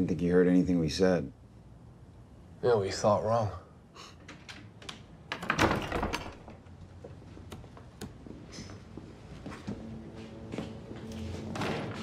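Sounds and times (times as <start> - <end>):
door pushed open with thud and rattle: 4.2 - 6.7, 11.4 - 12.0.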